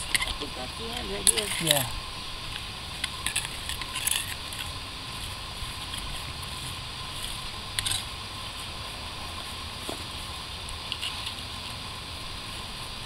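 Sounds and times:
hand tool scraping soil: 0:00.0 - 0:01.9
steady background hum: 0:00.0 - 0:13.0.

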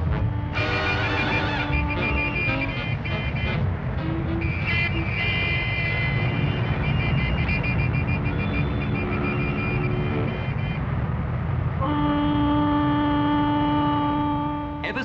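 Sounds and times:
long low horn blast: 0:00.0 - 0:07.6, 0:08.2 - 0:10.9, 0:11.8 - 0:15.0
car horn toots: 0:00.0 - 0:10.8
engines and lorries rumbling: 0:00.0 - 0:15.0.

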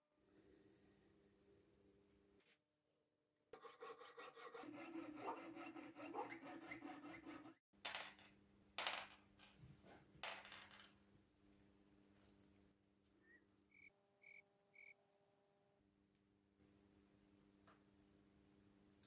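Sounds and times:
saw scraping through wire: 0:03.6 - 0:07.6.

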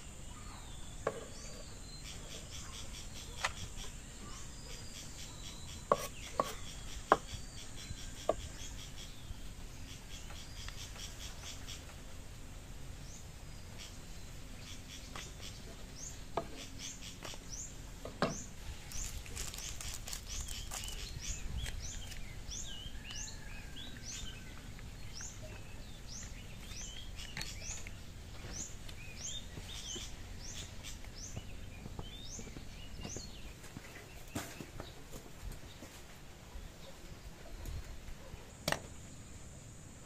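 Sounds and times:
small birds chirping: 0:00.0 - 0:39.7
outdoor background noise: 0:00.0 - 0:40.0
knife on wooden chopping board: 0:05.9 - 0:06.6.

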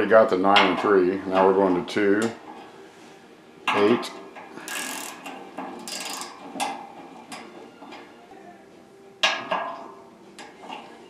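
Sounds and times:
ratchet rasp: 0:04.6 - 0:06.4
torque wrench clicking: 0:04.7 - 0:06.8.

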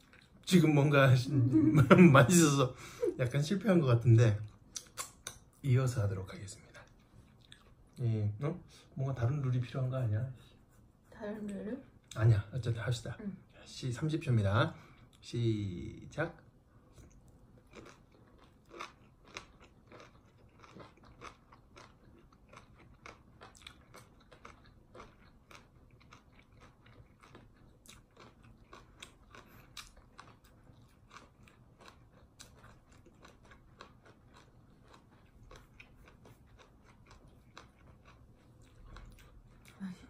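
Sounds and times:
people chewing crunchily: 0:00.0 - 0:00.7, 0:04.2 - 0:09.9, 0:16.9 - 0:40.0.

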